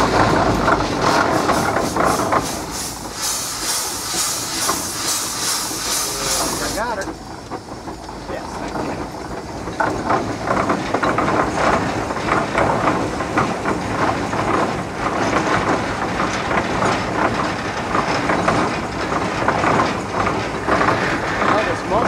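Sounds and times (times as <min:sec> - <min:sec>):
steam engine chuffing: 0:00.0 - 0:22.0
steam hiss: 0:00.8 - 0:07.0.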